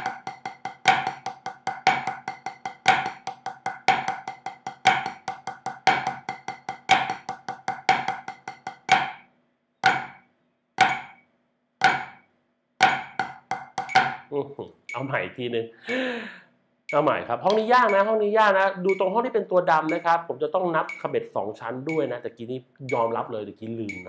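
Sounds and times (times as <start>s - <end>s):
drumsticks on practice pad: 0.0s - 14.3s, 20.9s - 21.1s
metronome clicking: 13.2s - 15.2s, 16.9s - 22.2s, 22.8s - 24.0s.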